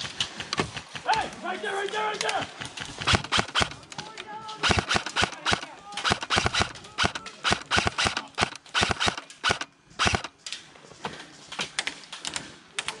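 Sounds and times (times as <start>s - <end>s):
airsoft gun shots: 3.0s - 3.8s, 4.6s - 10.3s.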